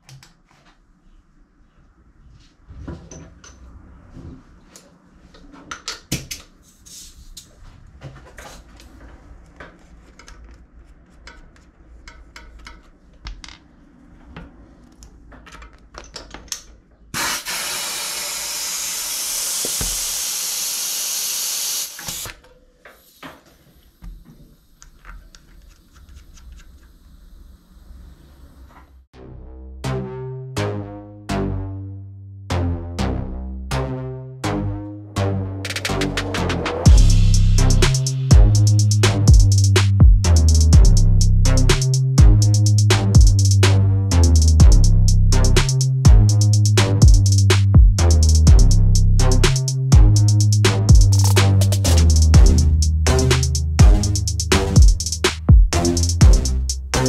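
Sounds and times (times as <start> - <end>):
air hissing through valve: 17.2 - 22.3.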